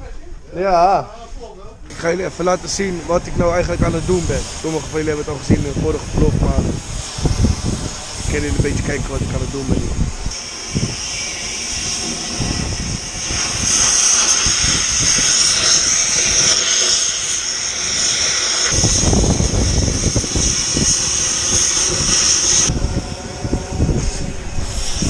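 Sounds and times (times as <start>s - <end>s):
cutting torch hissing: 1.4s - 25.0s
low rumble: 1.7s - 11.0s, 18.7s - 25.0s.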